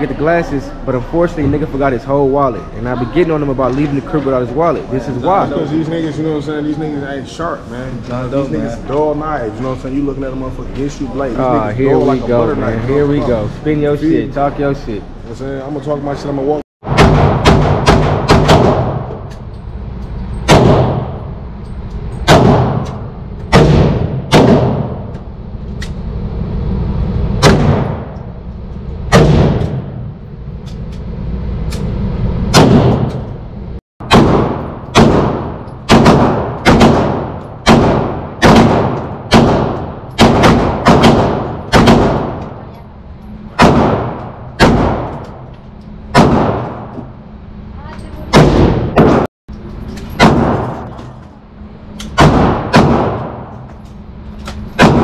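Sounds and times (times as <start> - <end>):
gunshots echoing indoors: 16.8 - 19.4, 20.3 - 26.0, 27.2 - 30.4, 32.4 - 33.4, 34.0 - 42.8, 43.4 - 47.4, 48.3 - 49.3, 50.1 - 55.0.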